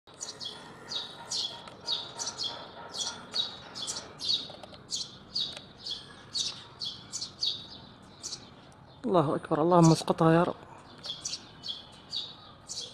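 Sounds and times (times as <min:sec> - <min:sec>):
small bird chirping: 0:00.1 - 0:09.1, 0:10.8 - 0:12.9.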